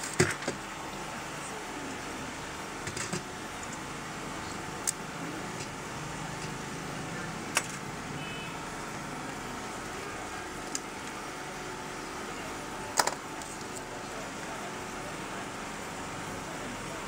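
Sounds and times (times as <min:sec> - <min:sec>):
steady background hum: 0:00.0 - 0:17.0
sharp plastic clicks: 0:07.5 - 0:07.8.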